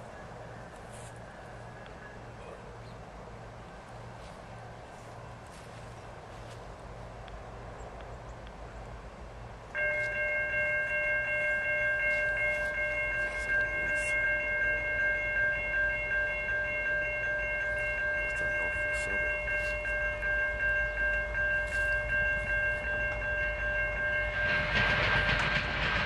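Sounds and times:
railroad crossing bell ringing: 0:00.0 - 0:02.8, 0:09.6 - 0:26.0.

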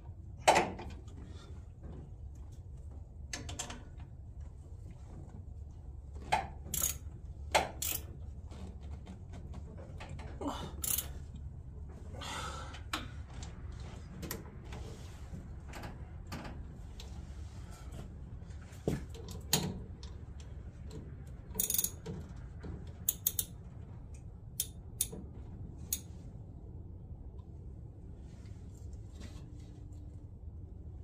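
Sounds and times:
hand tools clicking and clanking: 0:06.7 - 0:07.0, 0:07.6 - 0:08.2, 0:10.1 - 0:11.2, 0:21.6 - 0:22.1, 0:23.0 - 0:23.6.

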